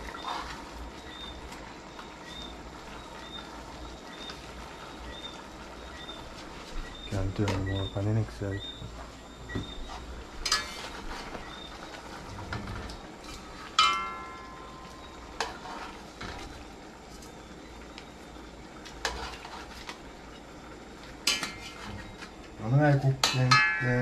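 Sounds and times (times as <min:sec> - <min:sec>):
metal spoon stirring in pot: 0:00.0 - 0:01.6, 0:09.8 - 0:16.7, 0:18.9 - 0:20.4, 0:21.2 - 0:22.3.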